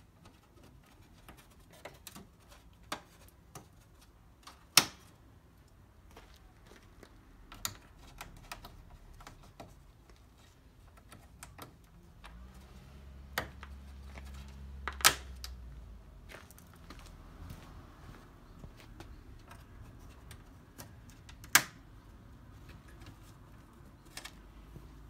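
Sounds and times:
plastic clips snapping: 20.3 - 21.8.

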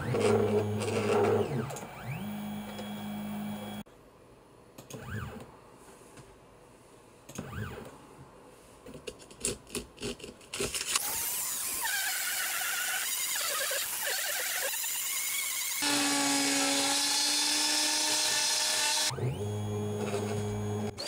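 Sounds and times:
rotary tool whine cutting acrylic: 0.0 - 3.8, 11.0 - 21.0.

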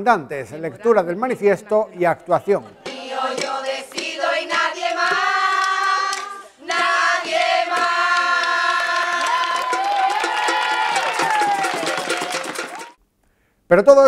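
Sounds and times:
women singing in chorus: 2.7 - 11.0.

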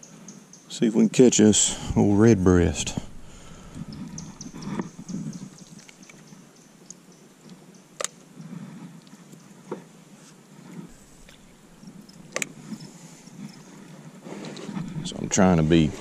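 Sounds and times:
low rumble: 1.7 - 5.6, 14.8 - 16.0.

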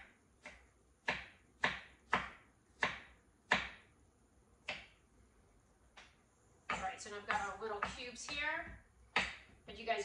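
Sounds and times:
knife chopping on cutting board: 0.0 - 3.8, 4.6 - 5.0, 6.7 - 8.4.

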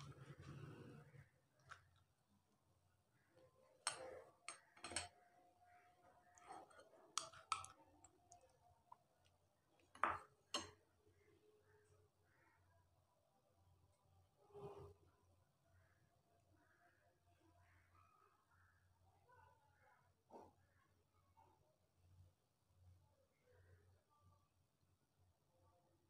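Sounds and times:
metal spoon tapping steel bowl: 3.8 - 5.1.

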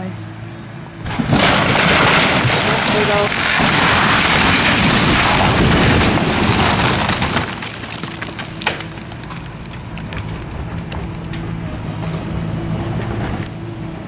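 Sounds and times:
steady engine hum: 0.0 - 2.6, 3.3 - 14.0
splintering wood cracks: 1.0 - 12.1
timber and roofing crashing: 1.0 - 12.1.

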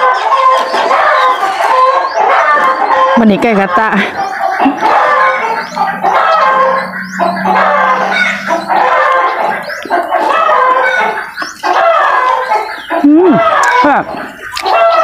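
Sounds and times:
chickens clucking: 0.0 - 15.0
low steady drone: 3.2 - 11.4.

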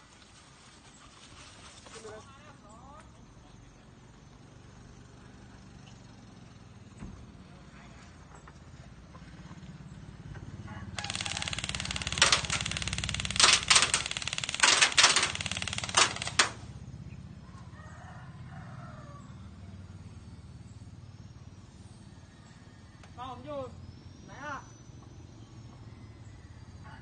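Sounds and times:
airsoft gun firing on full auto: 11.0 - 16.7.

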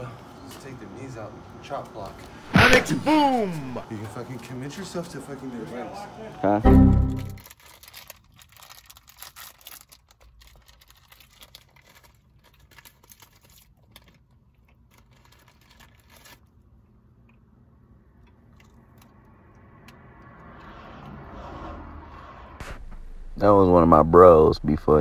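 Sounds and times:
plastic wrapper crinkling: 7.4 - 16.6
snack being chewed: 7.6 - 17.5, 18.1 - 20.6.

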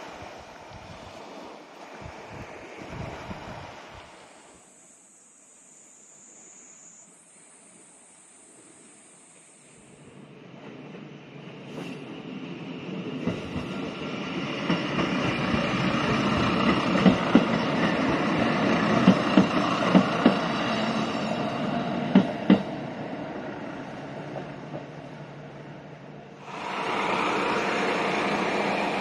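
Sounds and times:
diesel railcar rumbling past: 9.9 - 29.0
wheel clacks over rail joints: 14.6 - 18.2, 18.9 - 20.6, 22.1 - 22.8.

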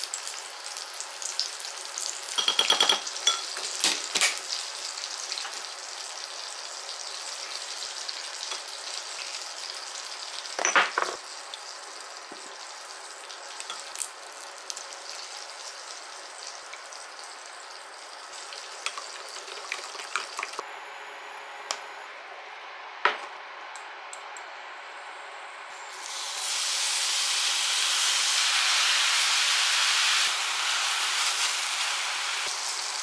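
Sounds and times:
spoon clinking against glass: 2.4 - 3.5.

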